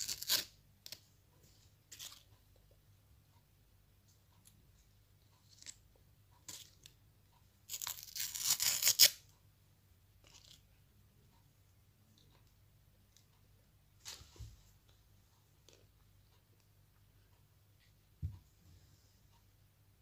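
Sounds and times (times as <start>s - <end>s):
paper wrapper tearing: 7.7s - 9.2s.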